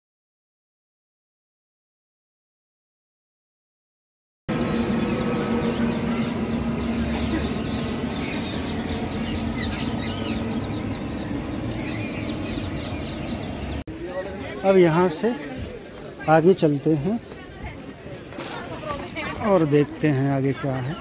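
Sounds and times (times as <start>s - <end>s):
jet airliner engine drone: 4.5s - 13.8s
birds chirping: 4.5s - 21.0s.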